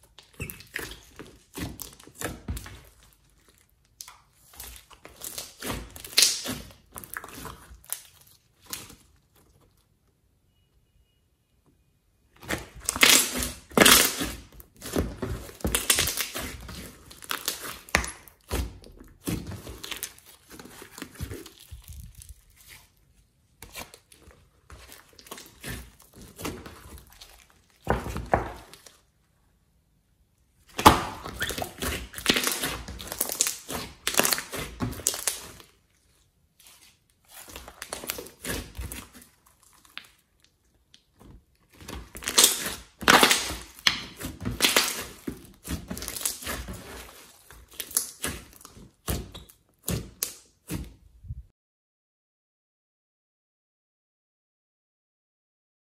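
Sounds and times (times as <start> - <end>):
slime crackling and popping: 0.0 - 9.8, 12.4 - 22.9, 23.7 - 29.0, 30.6 - 50.8.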